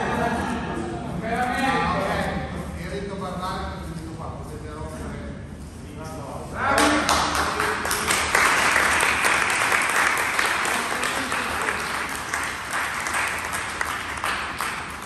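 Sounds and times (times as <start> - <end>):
group applauding: 6.7 - 15.0.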